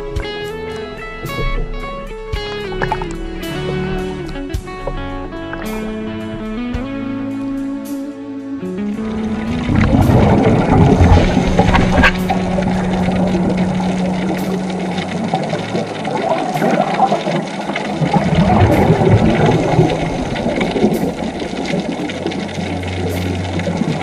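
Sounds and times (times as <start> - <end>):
underwater churning drone: 0.0 - 24.0
scuba exhale bubbling: 9.2 - 24.0.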